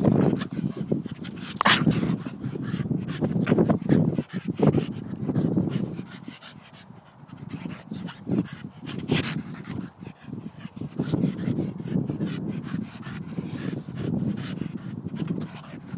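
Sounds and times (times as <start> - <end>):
dog panting: 0.0 - 15.9.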